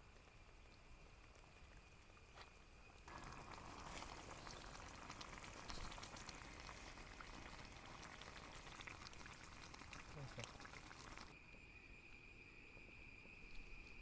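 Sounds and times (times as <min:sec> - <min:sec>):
food bubbling and sizzling in pot: 0:00.0 - 0:11.4.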